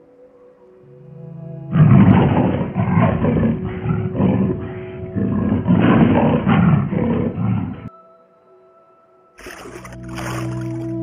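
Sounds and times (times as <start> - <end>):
animal growling roar: 1.7 - 7.9.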